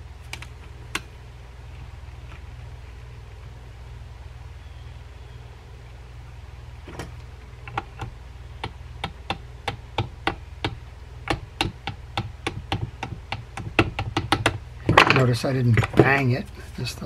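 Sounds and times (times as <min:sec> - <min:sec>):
small hammer tapping a pin: 0:07.7 - 0:15.1.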